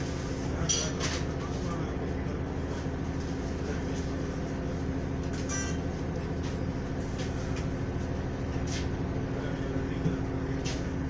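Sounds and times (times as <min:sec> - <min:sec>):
bus engine drone: 0:00.0 - 0:11.0.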